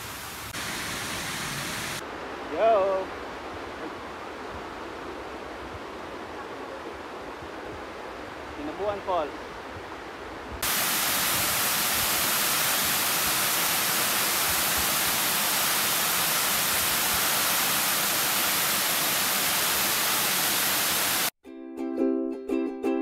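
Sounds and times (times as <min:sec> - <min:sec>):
waterfall rushing: 0:00.0 - 0:09.6, 0:10.6 - 0:21.3
plucked ukulele music: 0:21.4 - 0:23.0.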